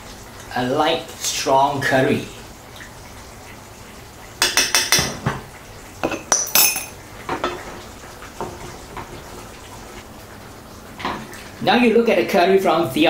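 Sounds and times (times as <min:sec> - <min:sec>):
utensils clinking against metal pot: 0:06.0 - 0:07.6
ringing metal clink: 0:06.4 - 0:06.9.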